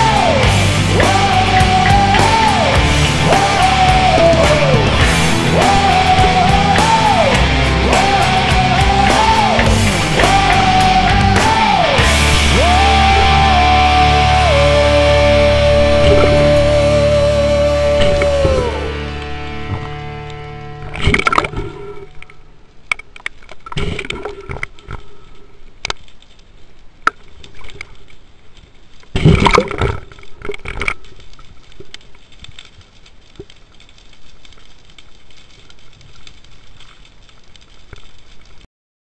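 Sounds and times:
diver's exhaled bubbles gurgling: 15.6s - 16.9s.

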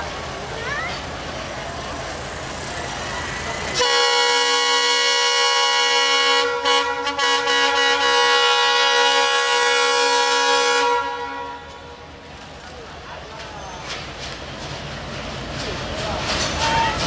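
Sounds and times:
locomotive air horn blast: 3.8s - 12.0s.

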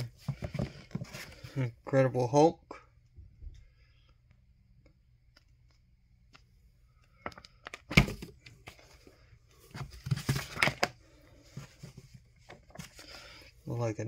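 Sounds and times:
paper and cardboard rustling: 0.0s - 1.6s, 8.1s - 13.6s.

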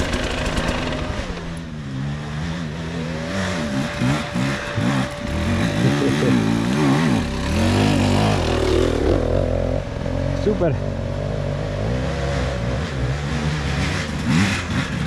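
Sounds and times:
motorcycle engine idling: 0.0s - 1.8s, 2.7s - 11.4s
dirt bike revving: 0.0s - 15.0s.

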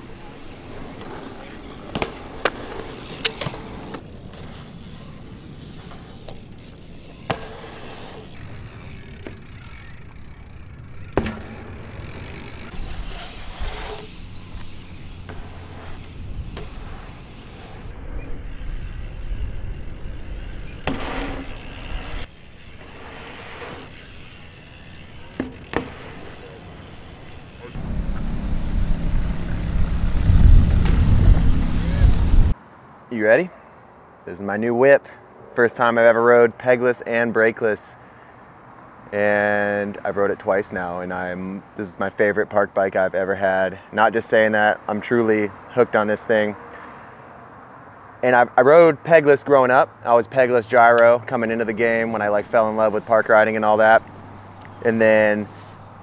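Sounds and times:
bike tyres rushing on concrete: 0.0s - 32.6s, 51.3s - 56.0s.

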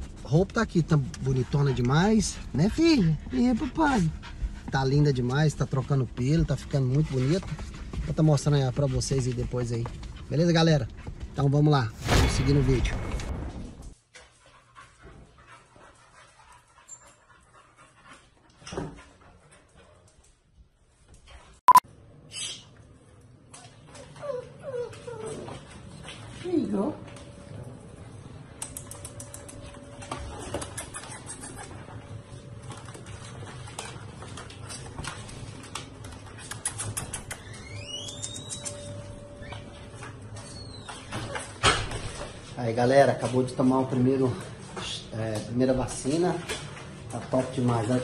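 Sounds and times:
dog panting: 0.0s - 11.4s, 14.2s - 20.2s
puppy whining: 23.6s - 25.8s, 29.4s - 32.3s, 36.5s - 41.6s.

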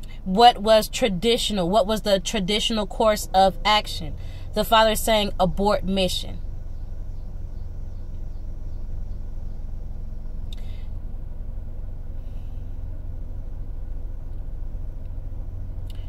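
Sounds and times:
low background rumble: 0.0s - 16.0s
faint click: 10.5s - 10.7s.

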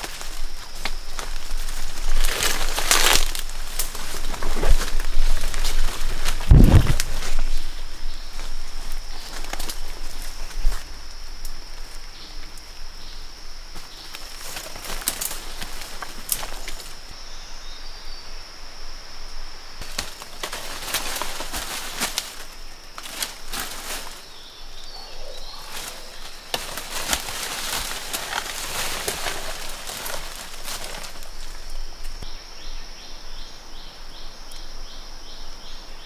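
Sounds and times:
footsteps crunching through leaf litter: 0.0s - 11.0s, 13.8s - 17.1s, 19.8s - 32.2s
dry palm fronds rustling: 0.0s - 17.2s, 19.3s - 32.2s
high insect drone: 0.0s - 36.0s.

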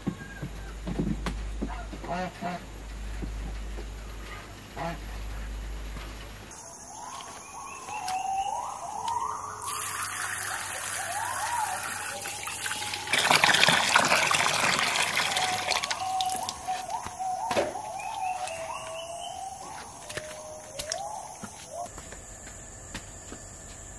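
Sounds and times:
hose water splashing into bucket: 9.6s - 16.8s.

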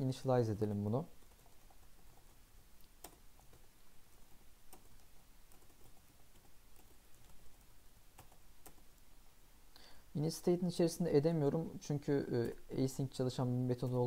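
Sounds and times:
low hiss: 0.0s - 14.0s
faint keyboard typing: 0.7s - 9.1s, 12.2s - 14.0s.

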